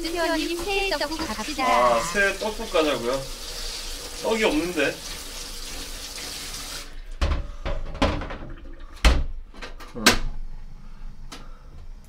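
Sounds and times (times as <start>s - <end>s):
kitchen tap running: 0.0s - 9.3s.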